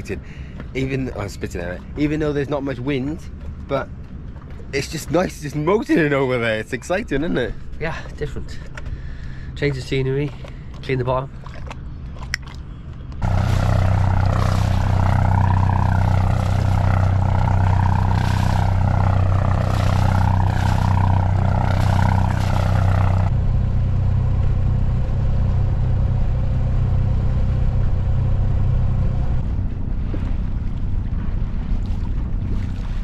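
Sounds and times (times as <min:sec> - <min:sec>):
boat engine running: 0:00.0 - 0:33.0
exhaust spitting water splashing: 0:07.9 - 0:23.3.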